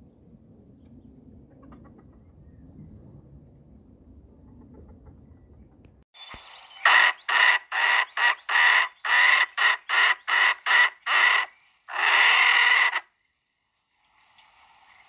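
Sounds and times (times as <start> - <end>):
chicken cackling: 1.5 - 2.5, 4.3 - 6.0, 6.8 - 13.1.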